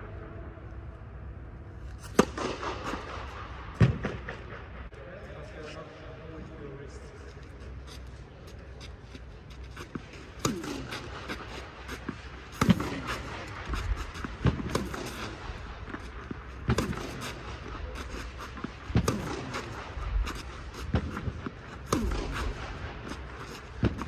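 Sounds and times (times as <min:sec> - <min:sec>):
tennis racket hitting ball: 0:02.0 - 0:04.2, 0:09.6 - 0:24.0
tennis ball bouncing on clay: 0:09.7 - 0:24.0.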